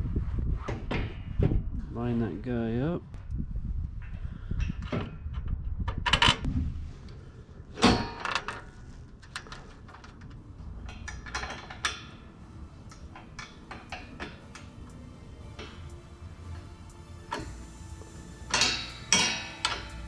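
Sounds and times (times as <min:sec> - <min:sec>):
loud metal clank: 0:18.5 - 0:19.9.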